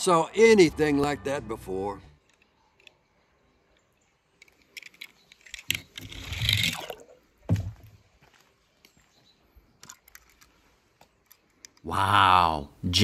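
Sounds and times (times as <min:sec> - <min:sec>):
dull knocks: 0:07.5 - 0:07.9.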